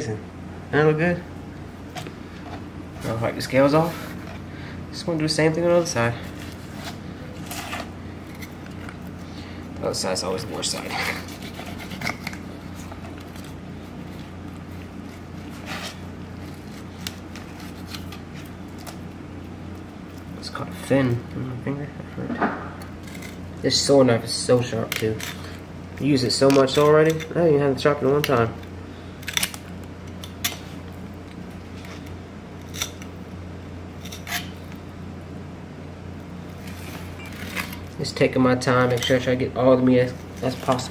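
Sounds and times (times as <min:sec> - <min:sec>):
steady low hum: 0:00.0 - 0:40.9
knife scraping fish: 0:10.8 - 0:13.6, 0:34.0 - 0:34.8.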